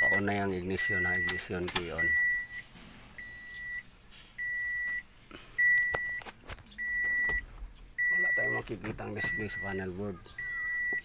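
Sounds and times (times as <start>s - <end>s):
vehicle warning buzzer beeping: 0.0s - 6.2s, 6.8s - 7.4s, 8.0s - 11.0s.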